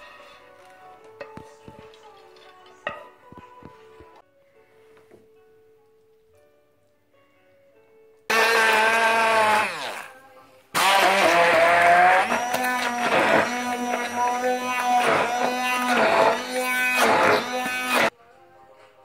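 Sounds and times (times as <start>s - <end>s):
stick blender motor whine: 8.3s - 10.1s, 10.7s - 18.1s.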